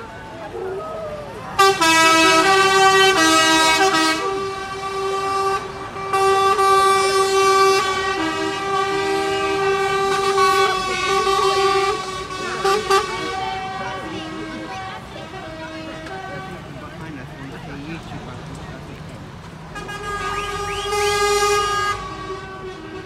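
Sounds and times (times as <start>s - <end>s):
truck air horn blasts: 1.5s - 16.7s, 19.7s - 23.0s
lower air horn: 1.6s - 16.7s, 19.8s - 23.0s.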